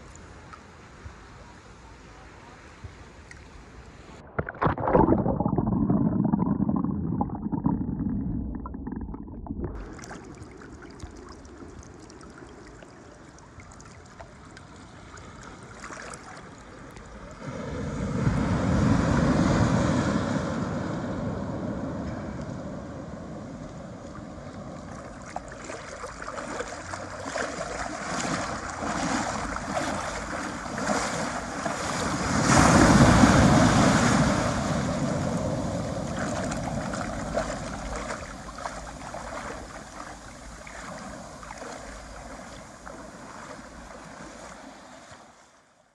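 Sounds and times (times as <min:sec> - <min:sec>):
muffled surf underwater: 0:04.0 - 0:45.7
small waves breaking on sand: 0:13.5 - 0:45.8.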